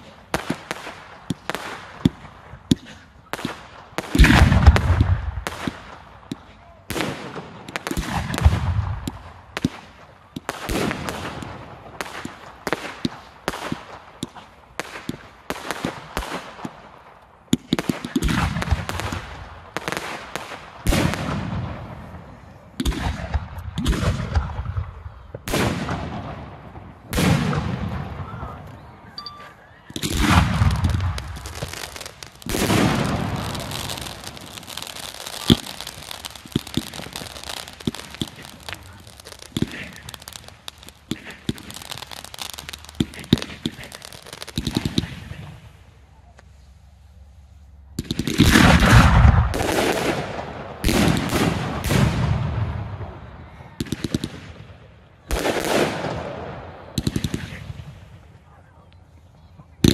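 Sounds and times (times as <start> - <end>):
firework shells bursting: 29.9 - 45.2
crackle of bursting stars: 30.0 - 45.2.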